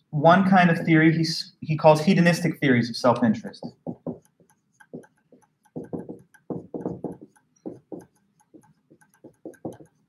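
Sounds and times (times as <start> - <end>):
marker squeaking on whiteboard: 3.5 - 10.0.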